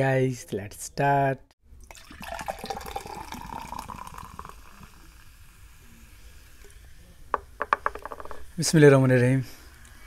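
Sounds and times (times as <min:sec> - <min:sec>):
liquid pouring into glass: 0:01.8 - 0:05.6
carbonation fizzing: 0:01.8 - 0:07.2.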